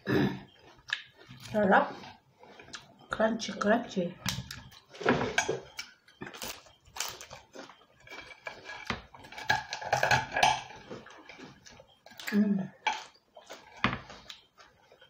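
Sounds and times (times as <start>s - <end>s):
crunchy chewing: 0.0s - 3.2s, 4.3s - 15.0s
cutlery scraping on plate: 5.0s - 5.8s, 8.0s - 11.6s.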